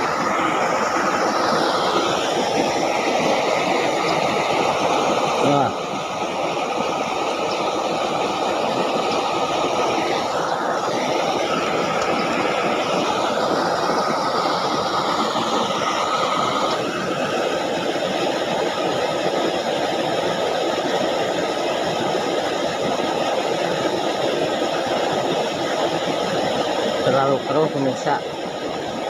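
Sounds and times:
faint high whine: 0.0s - 18.7s
water rushing through a ditch: 0.0s - 29.0s.

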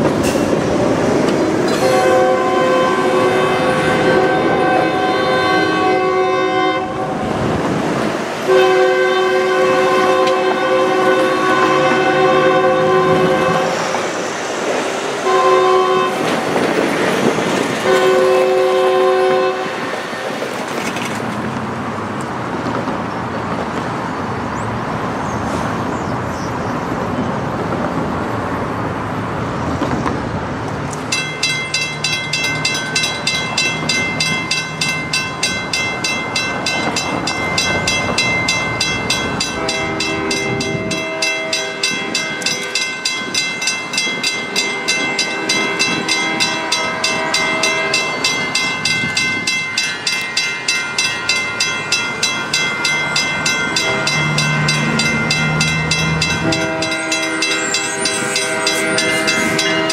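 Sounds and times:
diesel locomotive engine: 0.0s - 59.9s
road traffic passing: 0.0s - 59.9s
train air horn blasts: 1.7s - 7.4s, 8.5s - 14.1s, 15.2s - 16.4s, 17.8s - 19.8s, 39.4s - 42.8s, 44.5s - 48.3s, 53.7s - 59.9s
bell ringing rapidly: 31.1s - 59.9s.

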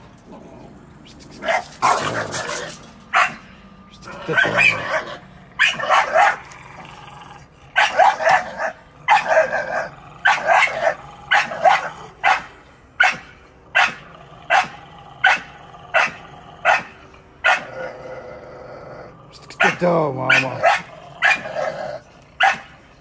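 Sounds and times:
dog barking: 3.1s - 3.4s, 4.3s - 6.5s, 7.8s - 17.7s, 19.6s - 21.8s, 22.4s - 22.8s.

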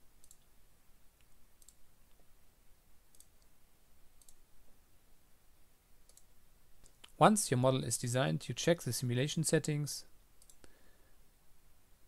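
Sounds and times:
computer mouse clicks: 0.2s - 0.5s, 1.2s - 2.2s, 3.1s - 3.5s, 4.2s - 4.4s, 6.0s - 7.2s, 10.4s - 10.8s.

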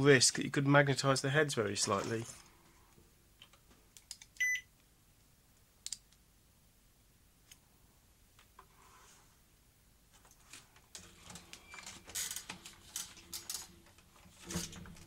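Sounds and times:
multimeter beep: 4.4s - 4.7s.

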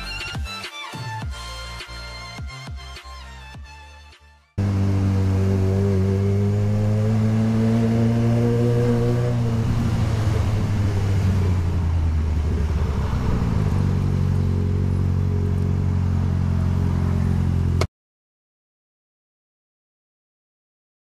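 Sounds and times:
motorcycle engine running: 4.6s - 17.9s
road and wind noise: 4.6s - 17.9s.

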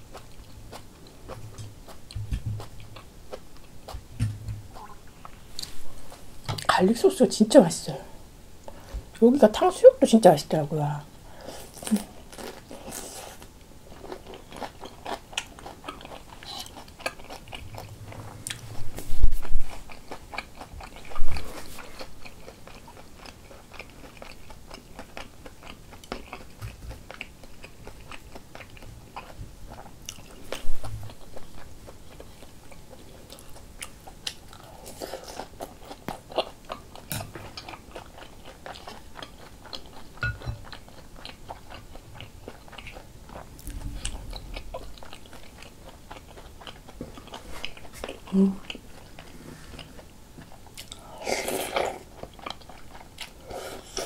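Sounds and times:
loud low thumps: 2.1s - 2.8s, 4.0s - 4.7s
crisp chewing crunches: 11.6s - 49.2s.

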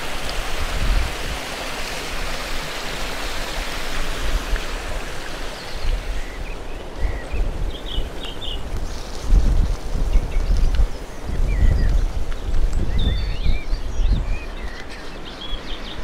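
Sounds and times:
water rushing down weir: 0.0s - 6.6s.

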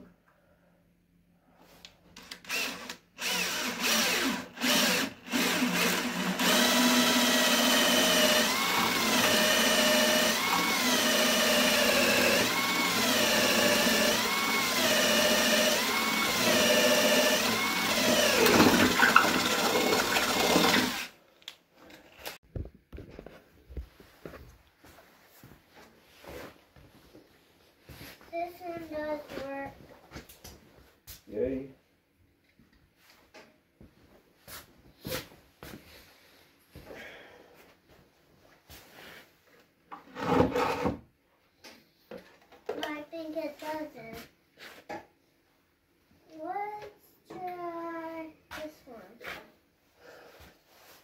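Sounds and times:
cordless drill boring into wood: 2.2s - 21.2s.

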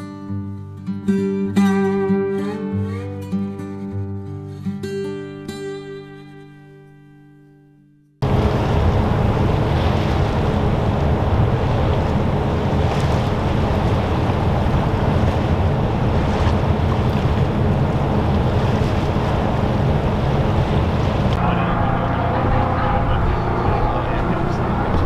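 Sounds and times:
ship engine drone: 8.2s - 25.0s
water washing: 8.2s - 25.0s
wind buffeting microphone: 8.2s - 25.0s.

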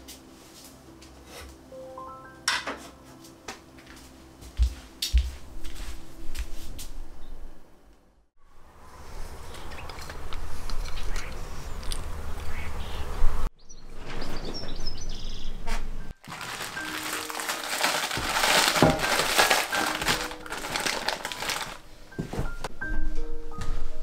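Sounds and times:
soft background music: 0.0s - 7.8s, 15.2s - 24.0s
rain pattering on leaves: 16.2s - 21.8s.

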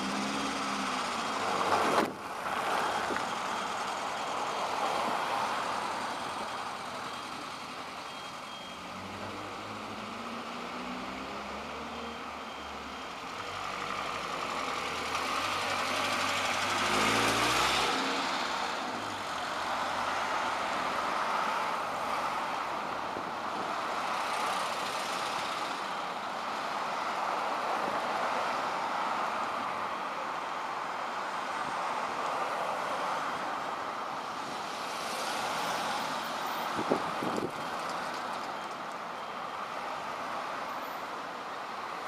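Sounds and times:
bus engine: 0.0s - 42.0s
traffic noise: 0.0s - 42.0s.

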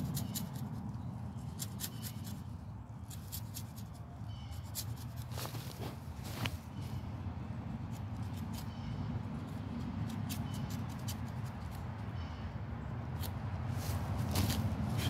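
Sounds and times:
knife scraping wood: 1.5s - 6.0s.

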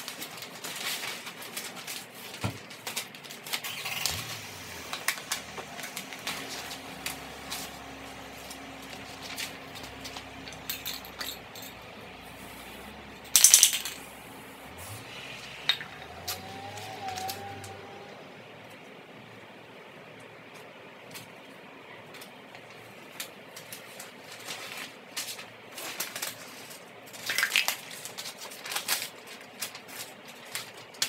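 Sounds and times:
masking paper and tape peeling: 0.1s - 18.4s.

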